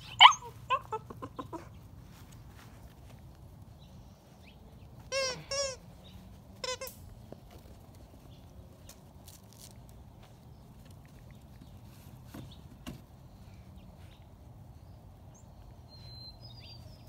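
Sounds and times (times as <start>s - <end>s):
puppy yelping: 0.0s - 1.7s.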